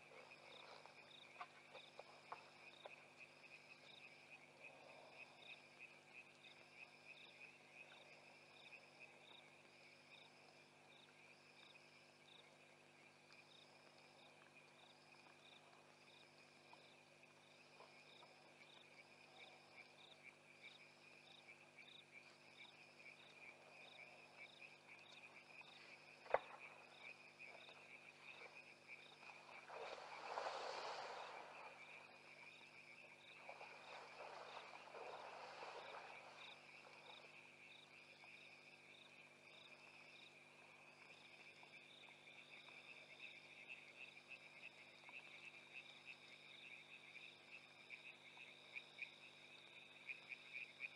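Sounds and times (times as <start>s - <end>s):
crickets trilling: 0.0s - 50.9s
higher pulsed insect call: 16.0s - 50.9s.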